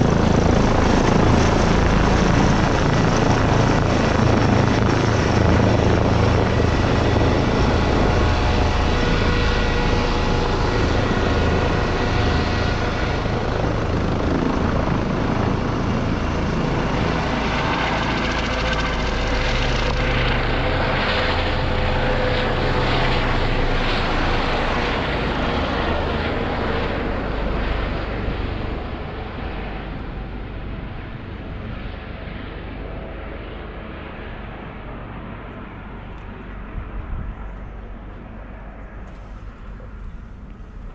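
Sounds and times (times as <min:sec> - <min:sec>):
helicopter flying overhead: 0:00.0 - 0:40.9.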